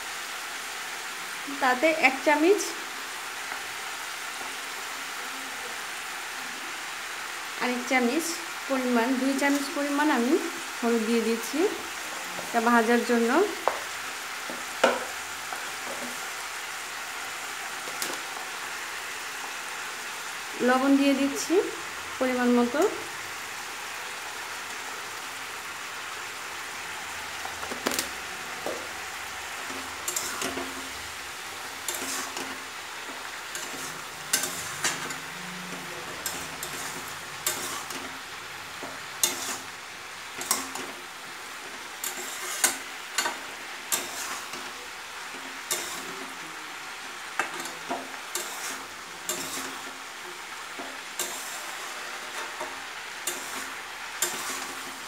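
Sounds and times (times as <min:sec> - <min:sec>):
food sizzling in oil: 0:00.0 - 0:55.0
metal spatula scraping pan: 0:29.5 - 0:39.8, 0:40.4 - 0:41.0, 0:41.7 - 0:46.4, 0:47.4 - 0:50.0, 0:50.6 - 0:55.0.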